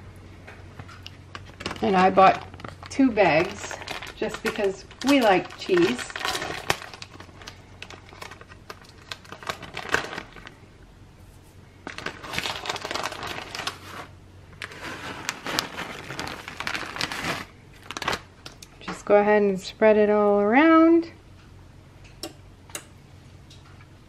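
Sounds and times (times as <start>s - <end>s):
plastic bag crinkling: 0.9s - 10.6s, 11.8s - 18.7s.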